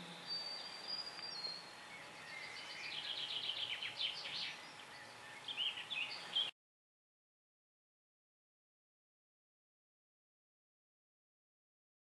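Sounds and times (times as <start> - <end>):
background hiss: 0.0 - 6.5
songbirds singing: 0.0 - 6.5.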